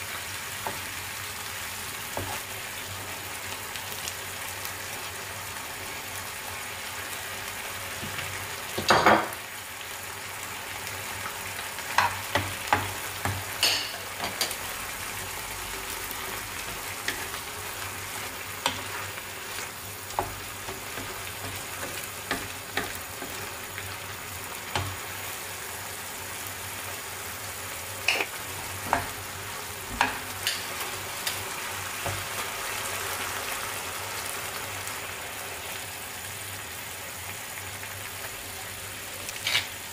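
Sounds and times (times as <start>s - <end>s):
chicken sizzling in a frying pan: 0.0s - 39.9s
spatula scraping a pan: 28.0s - 28.4s, 39.4s - 39.8s.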